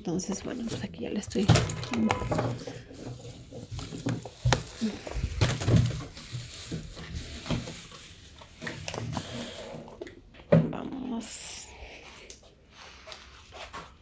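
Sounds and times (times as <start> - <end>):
plastic bag rustling: 0.0 - 10.3.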